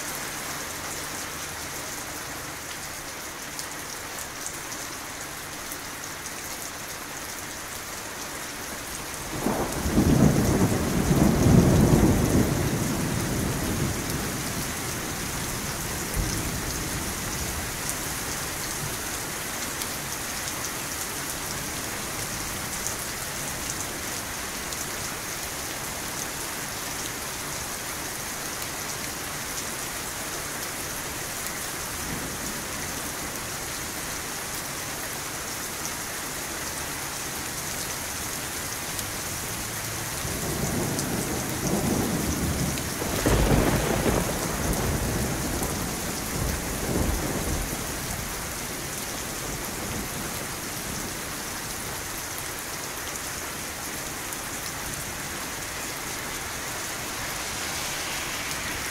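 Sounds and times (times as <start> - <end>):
steady rain: 0.0 - 58.9
thunder rumbling: 9.3 - 17.8, 40.2 - 48.6.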